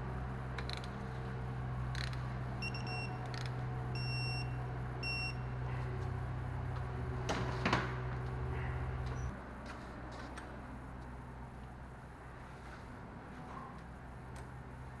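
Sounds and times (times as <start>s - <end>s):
steady low hum: 0.0s - 15.0s
short electronic beeps: 2.6s - 3.2s, 4.0s - 5.5s.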